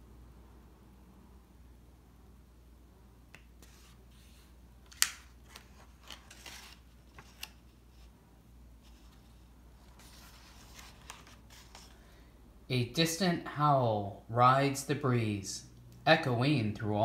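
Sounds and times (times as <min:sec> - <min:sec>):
book pages rustling: 0:03.4 - 0:08.2, 0:08.8 - 0:12.1
page snapping: 0:04.9 - 0:07.6.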